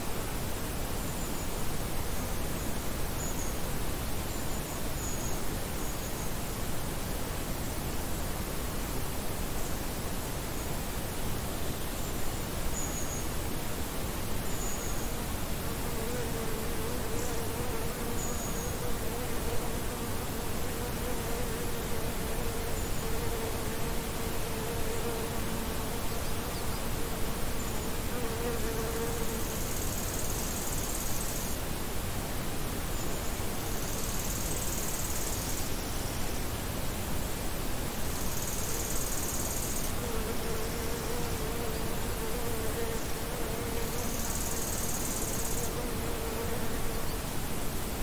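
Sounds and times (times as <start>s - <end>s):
outdoor hiss: 0.0s - 48.0s
flying insect buzzing: 15.7s - 31.4s, 38.4s - 47.2s.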